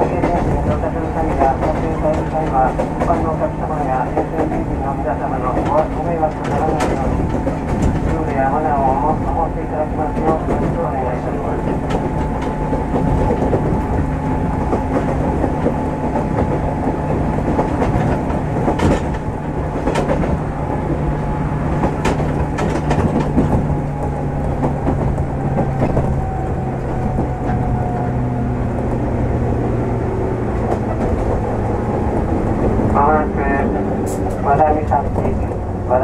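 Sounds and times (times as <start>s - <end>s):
train rumble with motor whine: 0.0s - 36.0s
wheels clicking over rail joints: 5.4s - 9.2s, 11.6s - 21.0s, 21.7s - 29.9s.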